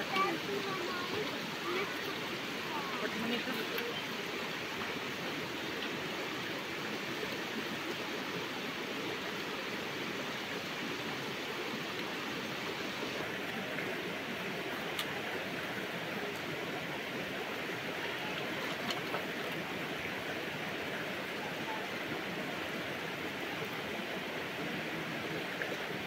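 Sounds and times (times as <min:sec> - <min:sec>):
river water rushing: 0:00.0 - 0:26.0.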